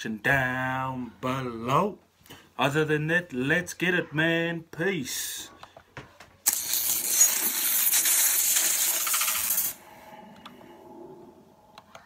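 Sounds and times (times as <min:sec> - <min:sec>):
bright hissing shimmer with rattle: 0:06.5 - 0:09.9
faint steady tones: 0:09.8 - 0:12.0.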